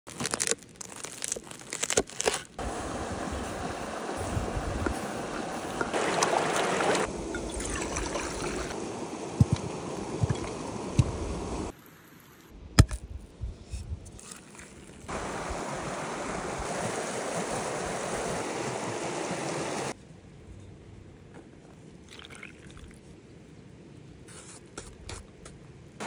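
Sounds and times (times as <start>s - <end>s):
mountain stream rushing: 2.6s - 11.8s, 15.1s - 20.0s
wooden bowl dipped in water: 5.6s - 8.8s, 22.1s - 23.0s.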